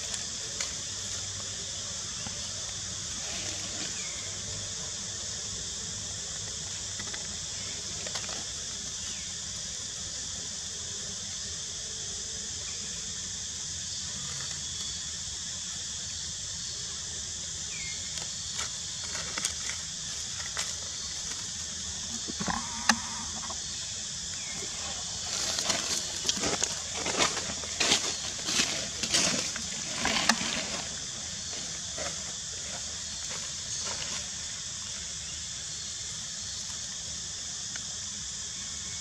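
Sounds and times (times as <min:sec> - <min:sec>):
steady high-pitched hiss: 0:00.0 - 0:39.0
dry leaves rustling and crackling: 0:25.2 - 0:32.2.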